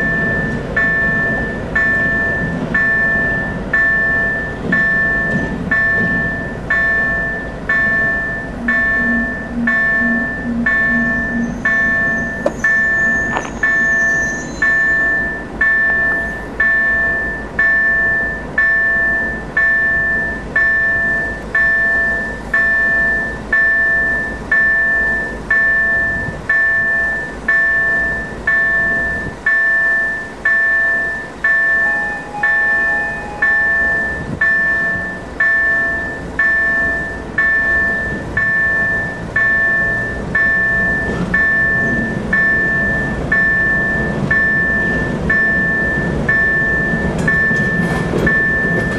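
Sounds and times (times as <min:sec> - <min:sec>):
diesel locomotive approaching: 0:00.0 - 0:48.9
level-crossing warning bell ringing: 0:00.0 - 0:48.9.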